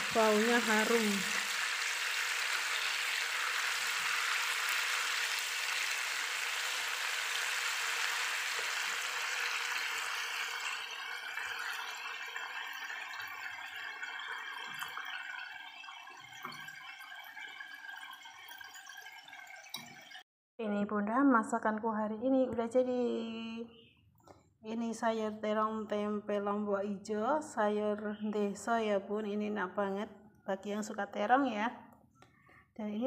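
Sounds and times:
fish sizzling in oil: 0:00.0 - 0:20.2.

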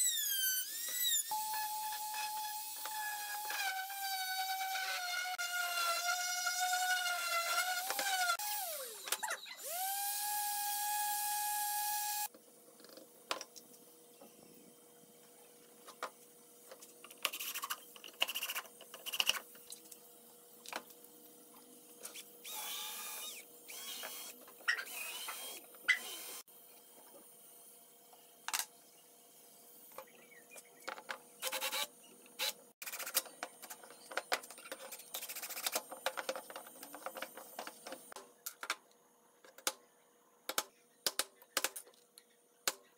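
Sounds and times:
cordless drill drilling wood: 0:00.0 - 0:12.3, 0:22.4 - 0:26.4.

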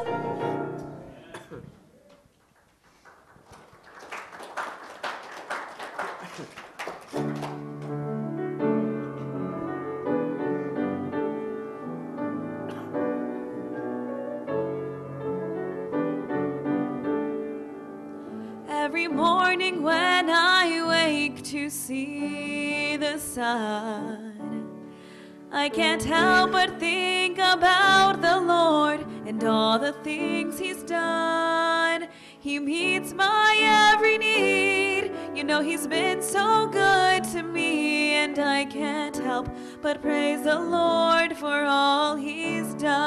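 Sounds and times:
solo piano: 0:00.0 - 0:01.2, 0:07.2 - 0:43.0
applause: 0:02.1 - 0:08.0
woman singing: 0:18.6 - 0:24.8, 0:25.5 - 0:43.0.

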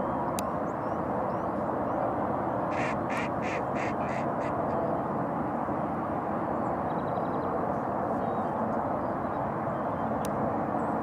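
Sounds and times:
duck quacking: 0:02.7 - 0:04.5.

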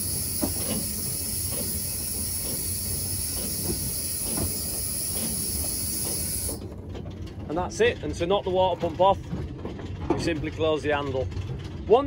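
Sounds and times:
steam hissing: 0:00.0 - 0:06.6
clack valve clunking: 0:00.0 - 0:07.5
locomotive water pump running: 0:00.0 - 0:12.0.

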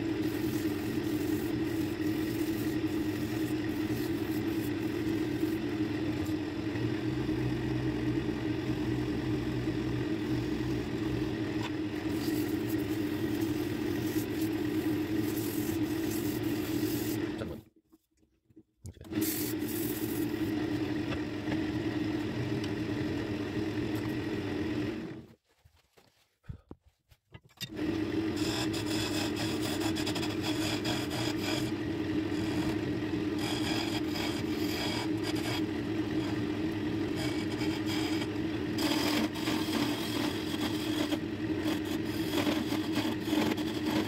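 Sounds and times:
sandpaper scraping hiss: 0:00.0 - 0:05.6, 0:12.1 - 0:17.2, 0:19.2 - 0:20.3, 0:28.4 - 0:31.7, 0:33.4 - 0:35.7, 0:37.2 - 0:44.0
lathe motor humming: 0:00.0 - 0:17.5, 0:19.1 - 0:25.2, 0:27.7 - 0:44.0.

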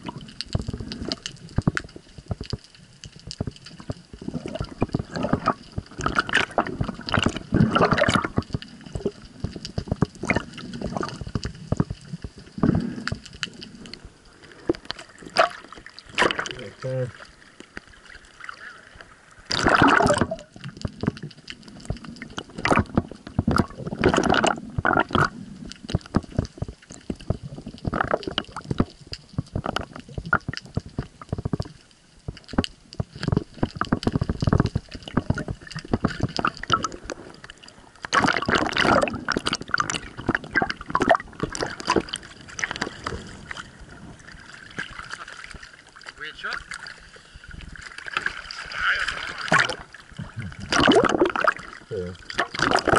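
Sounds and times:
seawater sloshing and splashing: 0:03.9 - 0:09.1, 0:10.1 - 0:21.2, 0:33.2 - 0:52.9.

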